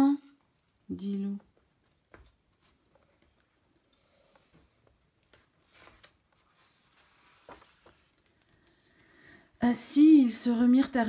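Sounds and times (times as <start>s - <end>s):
page turning rustle: 1.6s - 9.2s
hand on paper page: 4.2s - 9.1s.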